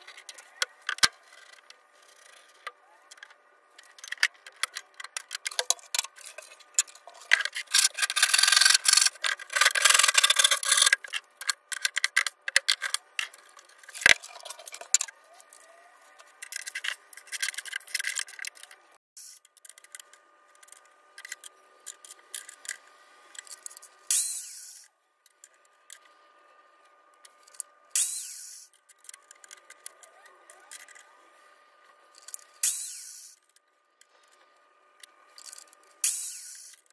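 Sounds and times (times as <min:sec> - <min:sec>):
hand tool rubbing and scraping: 0:05.6 - 0:15.0
small clicks: 0:27.2 - 0:31.2.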